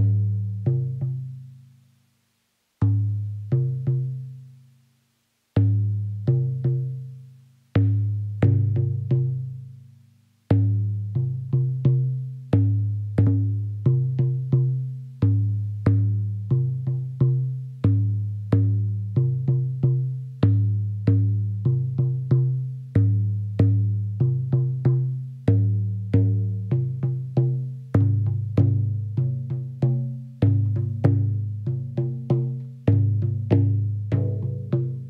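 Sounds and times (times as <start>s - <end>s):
low-pitched drums: 7.8s - 9.6s, 10.5s - 35.0s.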